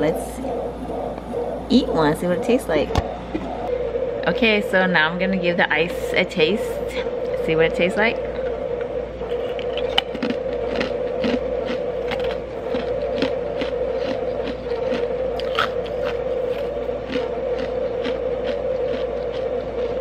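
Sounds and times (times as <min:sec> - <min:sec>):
ice machine humming: 0:00.0 - 0:20.0
ice being chewed: 0:09.3 - 0:20.0.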